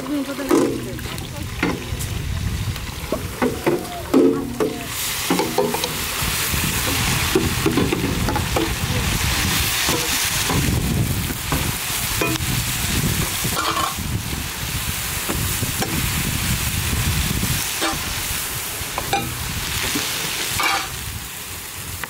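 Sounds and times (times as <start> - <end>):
onions sizzling in oil: 0.0 - 22.0
metal spatula scraping pan: 13.5 - 14.0, 17.8 - 18.1, 20.6 - 21.0.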